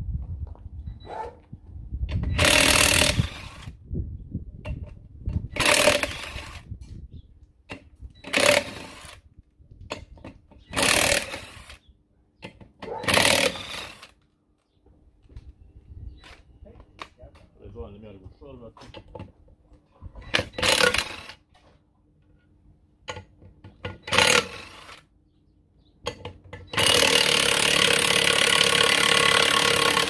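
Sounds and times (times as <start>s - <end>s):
impact wrench bursts: 2.3s - 3.6s, 5.5s - 6.6s, 8.2s - 9.2s, 10.7s - 11.8s, 13.0s - 14.1s, 20.3s - 21.4s, 24.0s - 25.0s, 26.6s - 30.0s.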